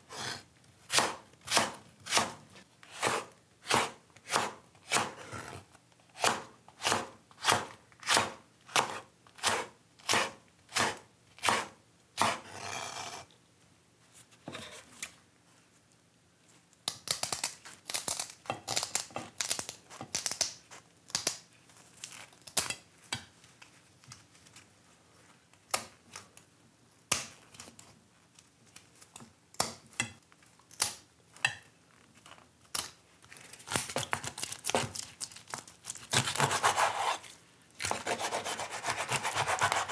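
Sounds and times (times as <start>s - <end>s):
knife chopping on wooden board: 0.9s - 2.4s, 3.0s - 5.2s, 6.2s - 12.4s
kitchen shears snipping fish: 36.0s - 37.2s, 37.8s - 39.9s.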